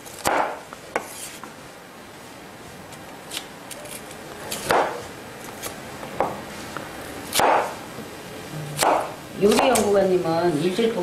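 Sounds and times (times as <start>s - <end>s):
knife striking wooden board: 0.2s - 1.1s, 4.7s - 5.0s, 7.3s - 7.8s, 8.8s - 9.8s.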